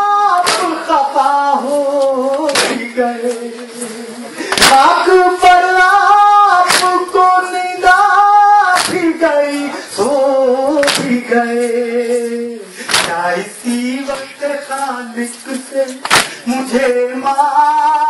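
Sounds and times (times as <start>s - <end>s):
mourners chanting: 0.0s - 18.0s
unison chest-beating strikes: 0.4s - 0.9s, 2.5s - 2.9s, 4.5s - 5.0s, 6.6s - 7.0s, 10.8s - 11.2s, 12.8s - 13.2s, 16.0s - 16.4s.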